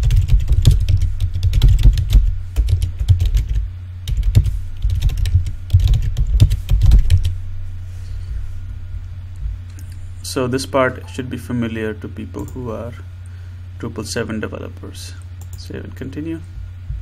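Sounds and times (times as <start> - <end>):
computer keyboard typing: 0.0 - 7.3.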